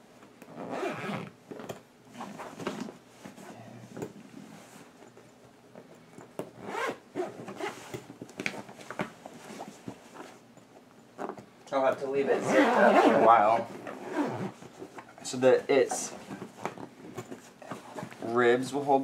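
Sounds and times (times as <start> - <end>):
handling noise: 0.2 - 18.4
heavy zipper being pulled: 0.5 - 1.3, 6.6 - 8.0, 12.3 - 14.7.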